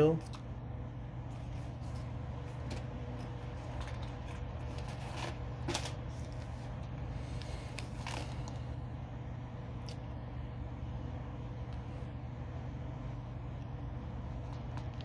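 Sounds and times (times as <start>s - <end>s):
low background hum: 0.0s - 15.0s
plastic packaging crinkling: 3.6s - 6.6s.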